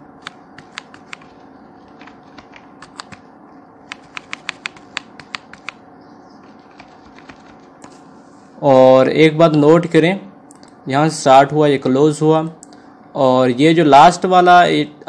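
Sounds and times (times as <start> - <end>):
faint steady hum: 0.0 - 15.0
keyboard keys clicking: 0.2 - 5.8, 6.4 - 7.9.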